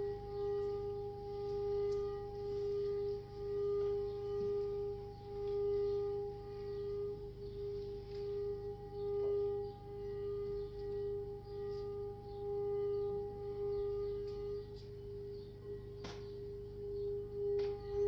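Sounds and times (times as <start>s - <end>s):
crystal singing bowl ringing: 0.0s - 18.0s.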